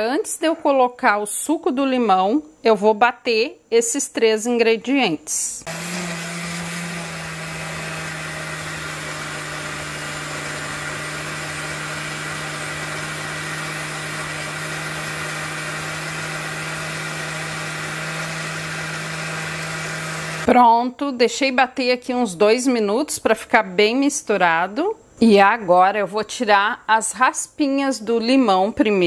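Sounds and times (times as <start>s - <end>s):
blender motor humming: 5.6s - 20.5s.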